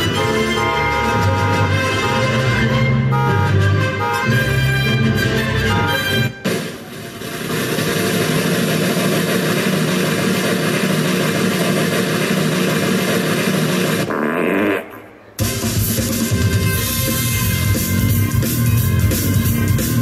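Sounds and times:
loud engine-like noise: 0.0 - 20.0.

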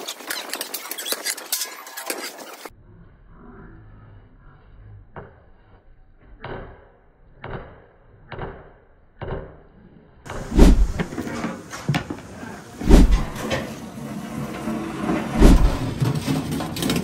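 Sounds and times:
loud thump: 10.3 - 11.2, 12.8 - 13.4, 15.4 - 16.0.

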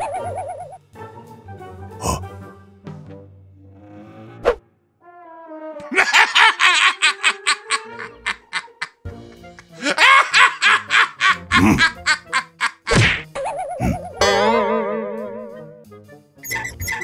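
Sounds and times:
cartoon character laughing: 0.0 - 0.8, 5.8 - 9.0, 9.6 - 14.6
background music: 0.0 - 17.0.

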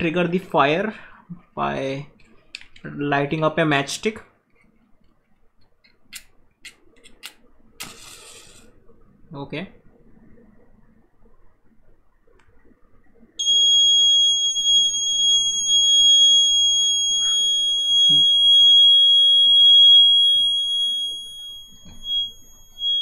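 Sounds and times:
high-pitched buzzer tone: 13.4 - 23.0.

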